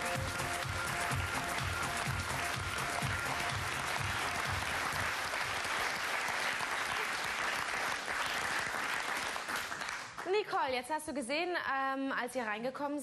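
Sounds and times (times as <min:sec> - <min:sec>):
audience applauding: 0:00.1 - 0:10.3.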